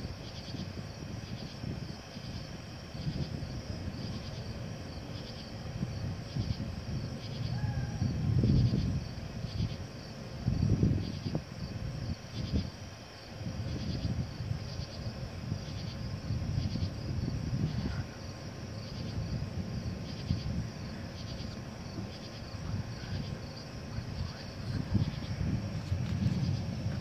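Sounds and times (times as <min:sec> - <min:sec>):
insects calling in pulses: 0:00.0 - 0:27.0
uneven low rumble: 0:13.4 - 0:27.0.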